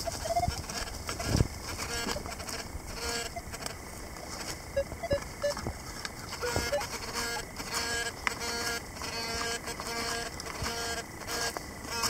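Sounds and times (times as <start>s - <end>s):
metal detector beeps: 0.0s - 0.6s, 3.0s - 3.6s, 4.7s - 5.6s, 6.3s - 7.4s.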